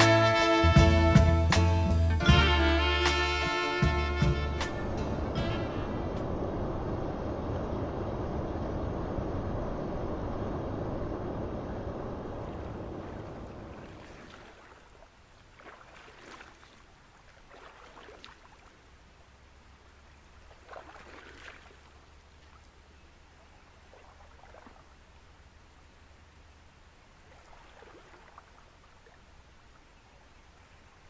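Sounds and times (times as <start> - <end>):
splashes from wading: 12.4 - 19.1, 20.0 - 25.3, 27.1 - 29.9.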